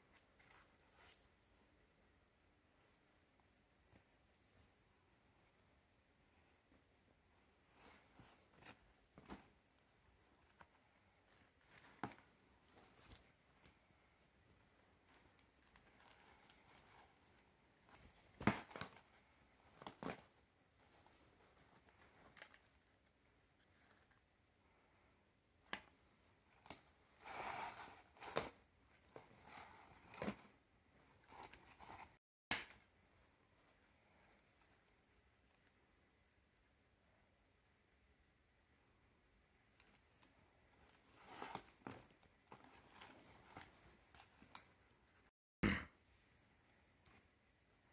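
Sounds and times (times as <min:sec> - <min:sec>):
fabric and cardboard rustling: 0:02.8 - 0:24.8, 0:25.9 - 0:32.2, 0:39.7 - 0:45.3.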